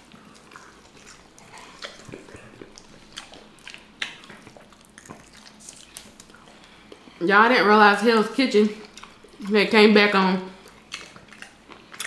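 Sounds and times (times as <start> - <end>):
chewing with wet mouth clicks: 0.0 - 7.2, 8.8 - 9.6, 10.5 - 12.0.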